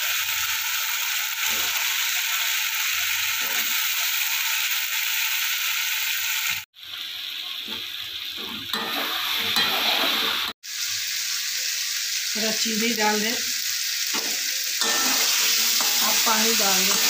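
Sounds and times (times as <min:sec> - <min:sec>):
masala sizzling in a pan: 0:00.0 - 0:17.0
steel spatula scraping a pan: 0:03.3 - 0:03.8, 0:07.7 - 0:10.5, 0:14.1 - 0:17.0.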